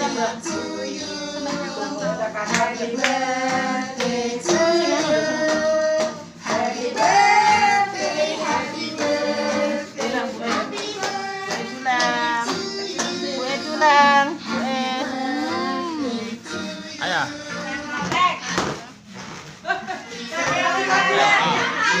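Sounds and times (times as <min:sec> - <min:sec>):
children singing: 0:00.0 - 0:17.7.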